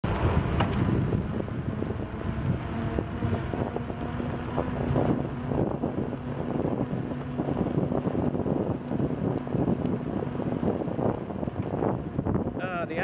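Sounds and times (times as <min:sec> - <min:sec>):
bicycle tyres rolling on pavement: 0:00.0 - 0:13.0
wind rushing over microphone: 0:00.0 - 0:13.0
bike clicks and rattles: 0:00.1 - 0:01.2.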